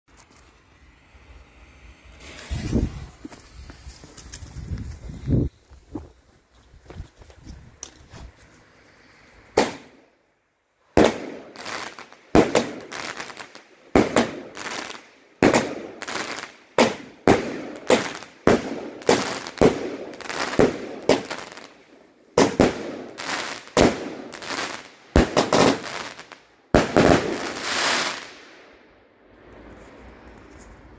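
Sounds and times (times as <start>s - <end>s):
firework bursts overhead: 0.3s - 5.2s, 9.4s - 10.1s, 10.9s - 28.8s.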